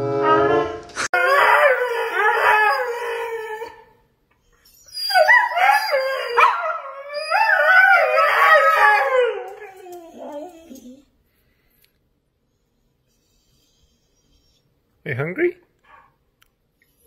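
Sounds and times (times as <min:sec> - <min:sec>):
dog howling: 0:00.2 - 0:03.9, 0:04.8 - 0:11.1.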